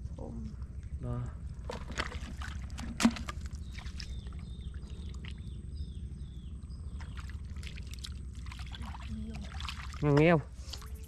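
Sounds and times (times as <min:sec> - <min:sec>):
steady low rumble: 0:00.0 - 0:11.0
bird chirping: 0:03.2 - 0:09.5.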